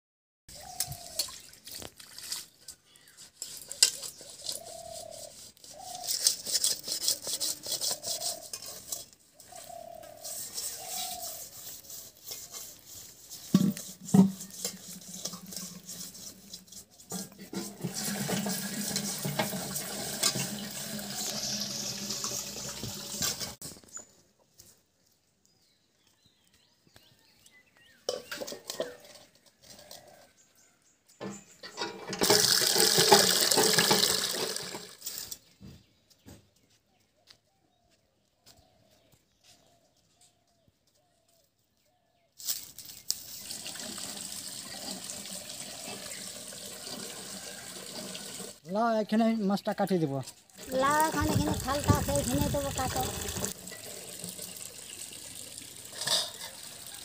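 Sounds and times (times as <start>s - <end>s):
water pouring into basin: 1.0s - 2.6s, 17.6s - 23.6s, 32.2s - 35.0s, 43.4s - 48.6s, 50.6s - 57.0s
water splashing: 1.0s - 2.7s, 50.6s - 57.0s
steel dishes clattering: 13.5s - 23.6s, 31.3s - 34.9s, 55.9s - 56.9s.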